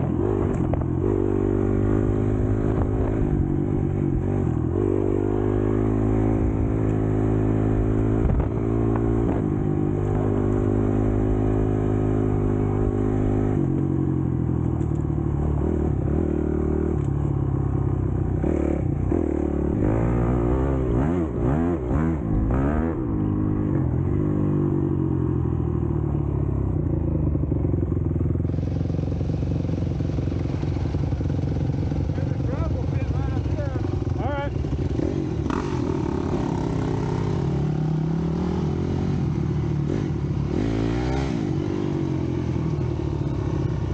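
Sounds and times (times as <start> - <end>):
dirt bike engine revving: 18.4 - 24.6, 31.2 - 43.8.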